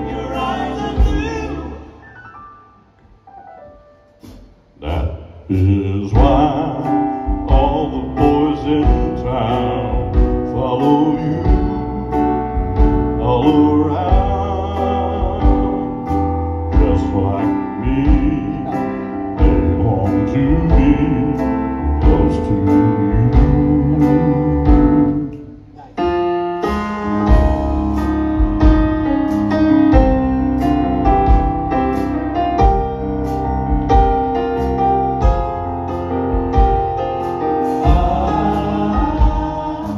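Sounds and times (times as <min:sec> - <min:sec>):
men singing in close harmony: 0:00.0 - 0:02.0, 0:37.7 - 0:39.9
piano accompaniment: 0:00.0 - 0:39.9
steady low beat: 0:04.2 - 0:39.9.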